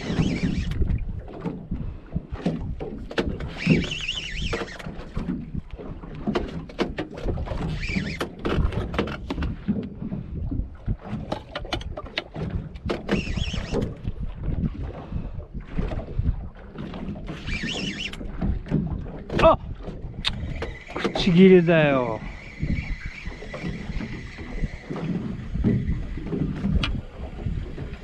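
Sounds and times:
wind and water rumble: 0:00.0 - 0:28.0.

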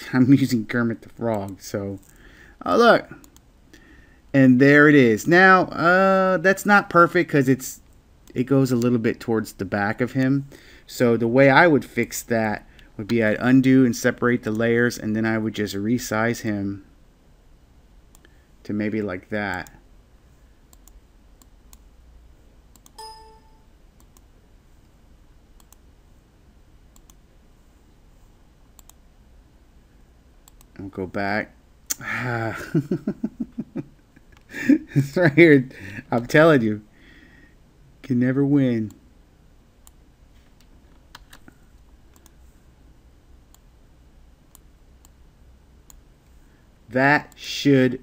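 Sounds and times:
faint low hum: 0:00.0 - 0:48.0
computer mouse clicks: 0:20.7 - 0:21.9, 0:22.7 - 0:23.0, 0:24.0 - 0:24.3, 0:25.6 - 0:25.8, 0:27.0 - 0:27.2, 0:28.8 - 0:29.0, 0:30.4 - 0:30.8, 0:40.6 - 0:42.4, 0:44.5 - 0:45.2
short bright chime: 0:23.0 - 0:23.6.

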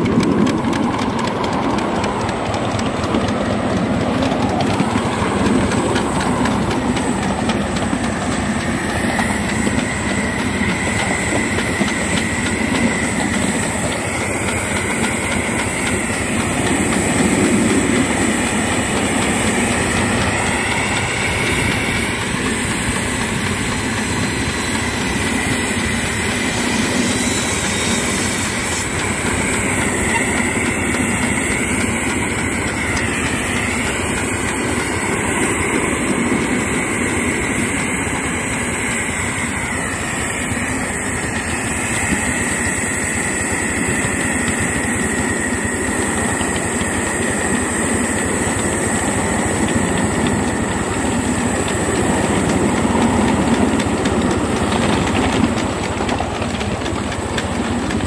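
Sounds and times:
steam locomotive engine working: 0:00.0 - 0:58.0
wheels on rails: 0:00.0 - 0:58.0.

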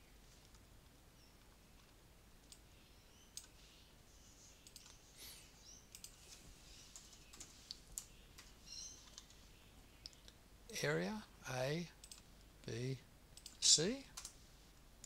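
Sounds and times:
computer mouse clicks: 0:03.3 - 0:03.6, 0:04.6 - 0:05.0, 0:05.9 - 0:06.2, 0:06.9 - 0:09.4, 0:10.0 - 0:10.4, 0:12.0 - 0:12.3, 0:13.4 - 0:14.4.

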